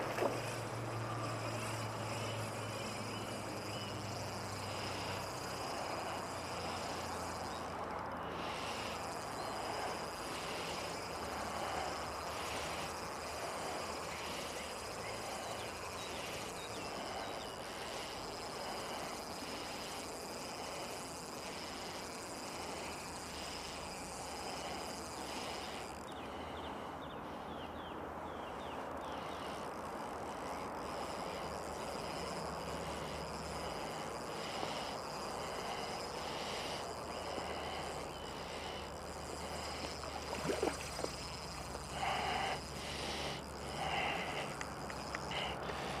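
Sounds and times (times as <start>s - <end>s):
fishing reel winding: 0.0s - 27.4s, 28.4s - 46.0s
heavy nasal breathing: 0.0s - 46.0s
fish splashing: 38.9s - 42.8s.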